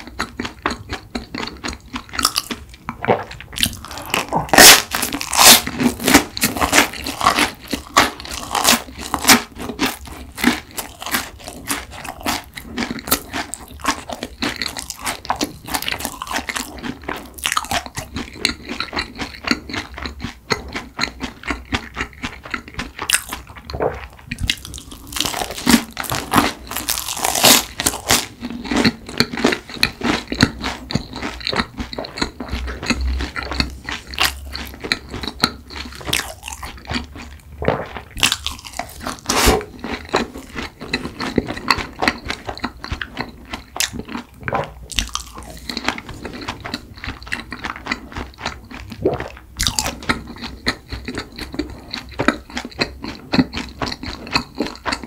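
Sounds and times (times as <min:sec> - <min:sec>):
crunchy bread chewing: 0:00.0 - 0:55.0.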